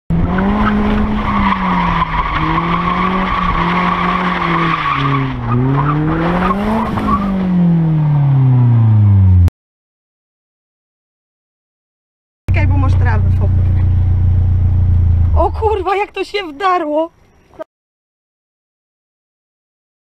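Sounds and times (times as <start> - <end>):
car engine revving: 0.1 - 9.5, 12.5 - 16.0.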